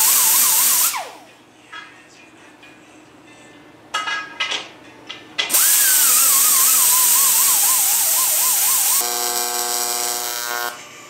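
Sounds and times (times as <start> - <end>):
die grinder whining on metal: 5.5 - 10.8.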